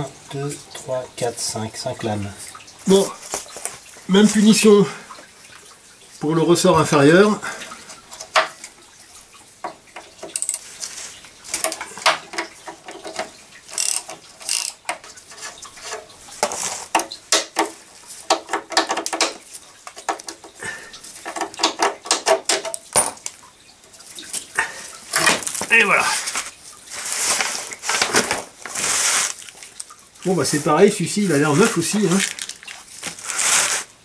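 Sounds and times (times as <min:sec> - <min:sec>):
metal tools clinking: 0:10.2 - 0:10.7, 0:11.6 - 0:14.8
socket ratchet clicking: 0:10.3 - 0:10.6, 0:13.7 - 0:14.8.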